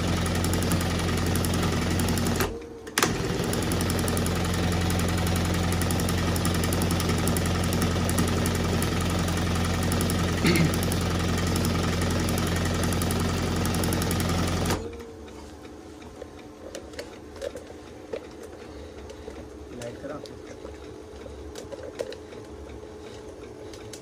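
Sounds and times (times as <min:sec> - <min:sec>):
embroidery machine running: 0:00.0 - 0:15.1.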